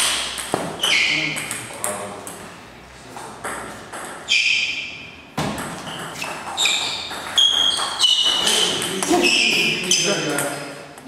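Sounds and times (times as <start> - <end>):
shoes squeaking on floor: 0.6 - 1.4, 4.2 - 10.4.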